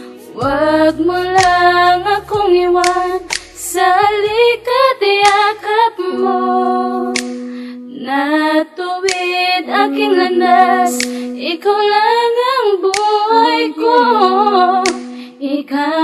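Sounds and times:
person singing: 0.0s - 16.0s
low bass line: 0.4s - 8.1s.

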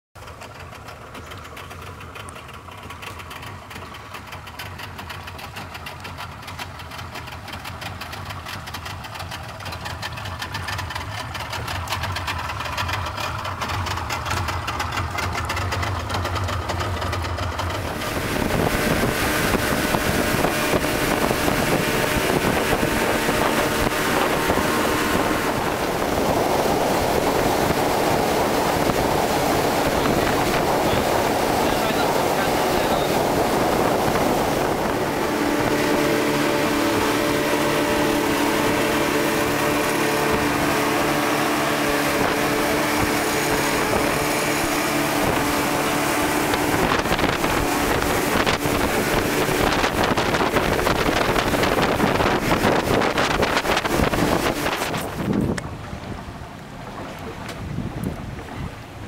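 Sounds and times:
rush of wind and water: 0.2s - 59.0s
speedboat engine running: 0.2s - 59.0s.

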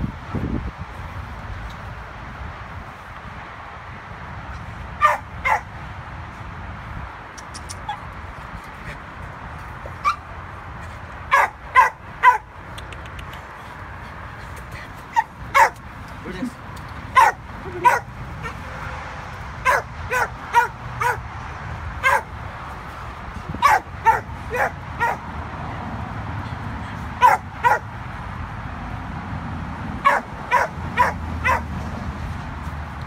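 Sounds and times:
dog yipping barks: 5.0s - 5.7s, 10.0s - 10.3s, 11.3s - 12.5s, 15.1s - 15.8s, 17.1s - 18.6s, 19.6s - 21.2s, 22.0s - 22.3s, 23.6s - 25.2s, 27.2s - 27.8s, 30.0s - 31.7s.

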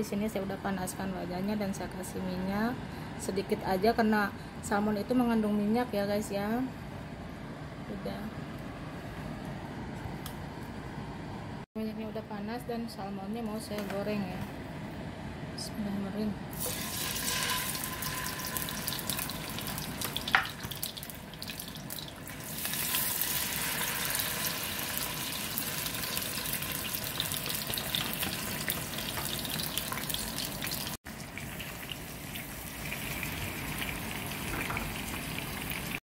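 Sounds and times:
fish sizzling in hot oil: 16.6s - 36.0s.

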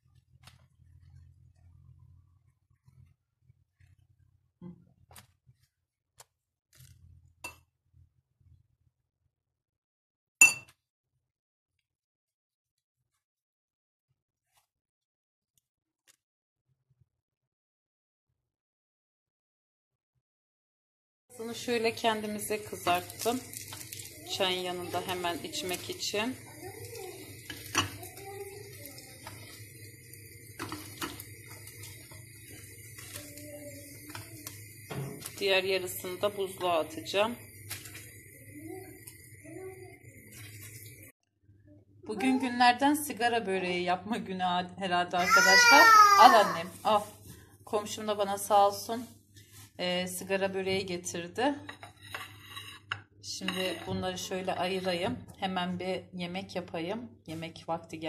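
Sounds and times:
utensil scraping frying pan: 21.5s - 41.1s, 51.7s - 54.3s
utensil clinking against dish: 51.7s - 54.0s.

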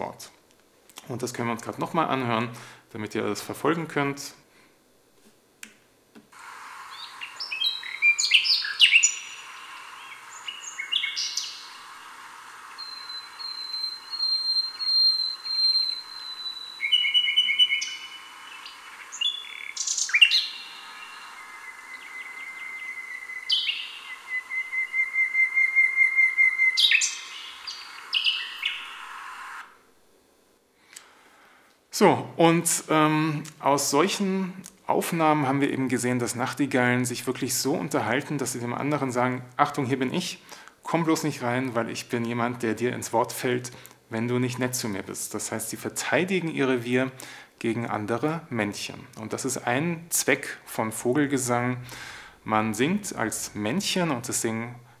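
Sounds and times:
steady hiss: 0.0s - 55.0s
nightingales singing: 6.9s - 29.6s.

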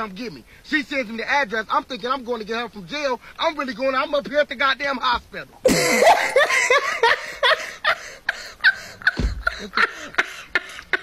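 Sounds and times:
woman laughing: 5.7s - 11.0s.

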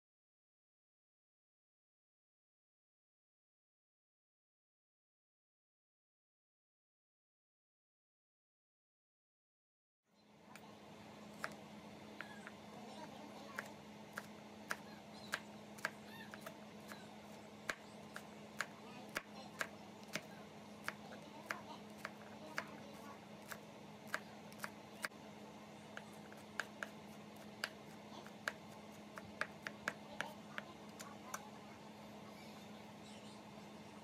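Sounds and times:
low steady hum: 10.1s - 34.0s
knife chopping on wooden board: 11.4s - 11.6s, 13.6s - 17.0s, 17.6s - 22.8s, 23.4s - 24.8s, 25.9s - 31.1s.

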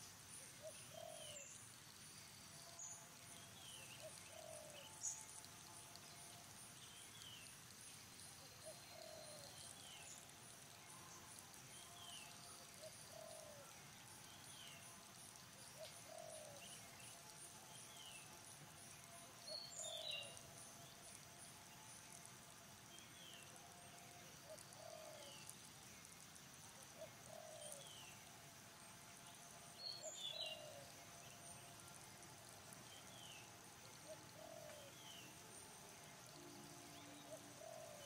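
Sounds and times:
insects pulsing: 0.6s - 38.0s
bird chirp: 19.5s - 20.4s.

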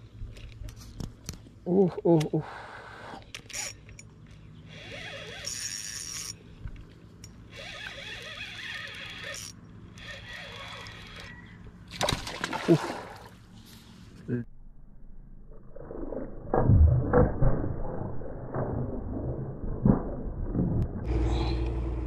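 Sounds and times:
fishing reel whirring: 3.3s - 4.0s, 4.7s - 6.4s, 7.2s - 11.4s
splash of water: 11.9s - 13.4s.

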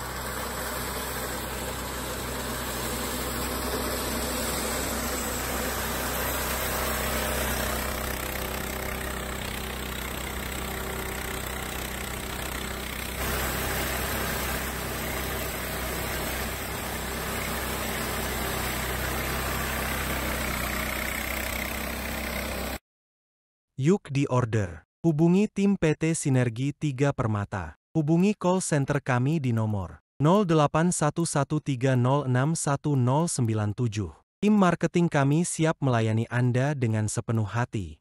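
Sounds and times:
combine harvester engine hum: 0.0s - 22.8s
mechanical rush of harvester: 0.0s - 22.8s.

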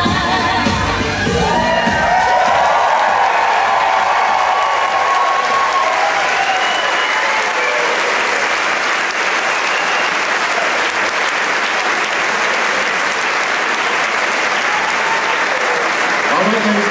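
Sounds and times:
cheers and whoops: 1.1s - 10.9s, 13.8s - 16.4s
audience applauding: 1.2s - 16.9s.

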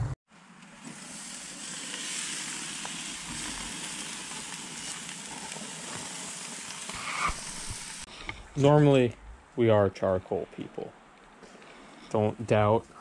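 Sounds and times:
gas burner flames: 0.6s - 9.6s
meat patties sizzling on a grill: 0.7s - 8.1s.

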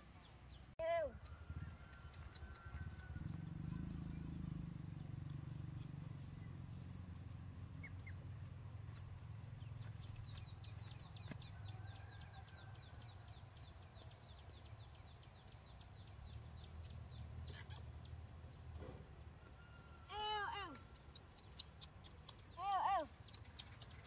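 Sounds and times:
bird chirping: 0.0s - 6.9s, 7.5s - 8.5s, 9.5s - 18.7s, 20.5s - 24.0s
faint low rumble: 0.0s - 19.3s.

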